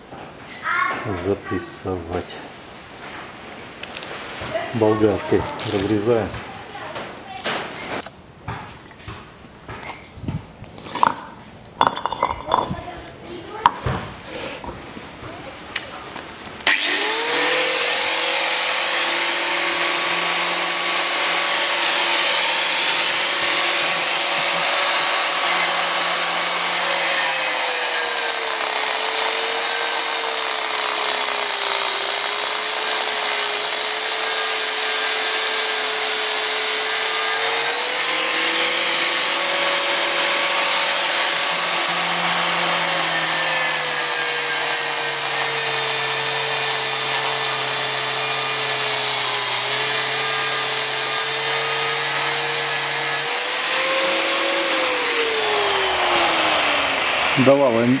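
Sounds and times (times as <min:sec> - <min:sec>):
angle grinder cutting metal: 0:05.0 - 0:06.2, 0:10.9 - 0:12.8, 0:16.6 - 0:58.0.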